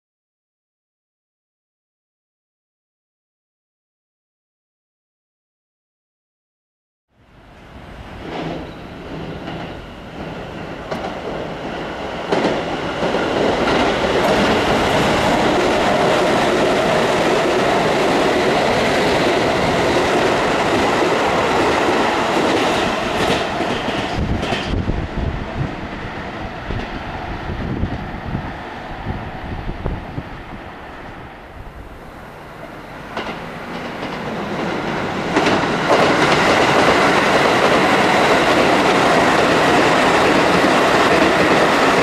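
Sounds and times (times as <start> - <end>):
electric train passing: 7.2 - 42.0
train wheels clacking: 8.2 - 25.1, 32.6 - 42.0.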